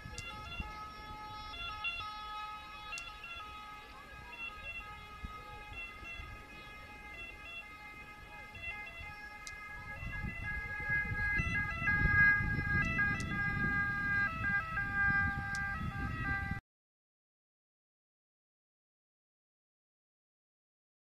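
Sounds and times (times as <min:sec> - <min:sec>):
ambulance two-tone siren: 0:00.0 - 0:16.6.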